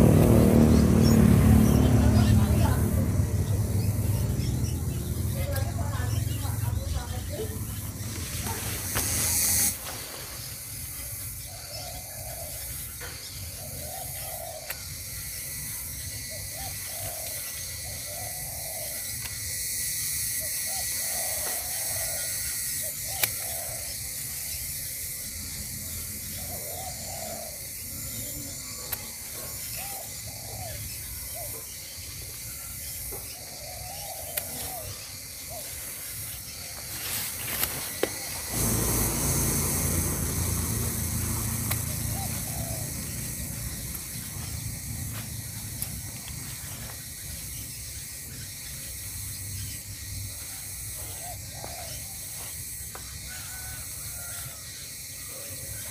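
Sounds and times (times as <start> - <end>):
steady high hiss: 7.2 - 11.6, 35.7 - 50.2
garden scissors snipping stems: 7.9 - 10.0, 23.1 - 23.4, 34.3 - 34.7, 37.3 - 46.5.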